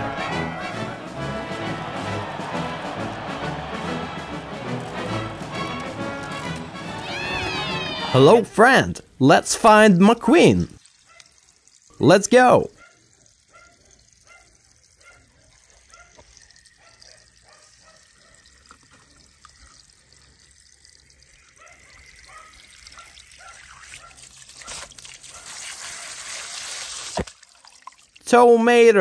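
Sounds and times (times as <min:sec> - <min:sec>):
water trickling and dripping: 0:10.0 - 0:28.4
water spraying and splashing: 0:10.5 - 0:12.1, 0:18.9 - 0:28.2.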